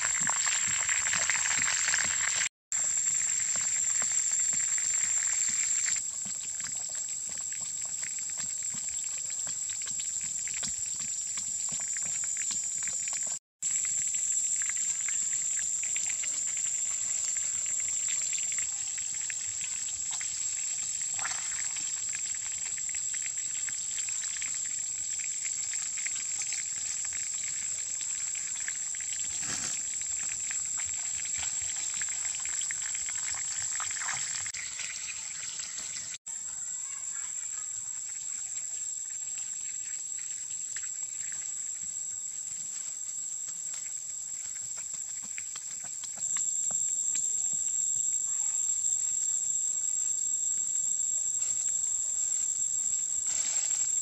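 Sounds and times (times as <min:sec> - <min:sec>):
high-pitched insect drone: 0:07.8 - 0:22.1
faint crackles and ticks: 0:40.2 - 0:49.0.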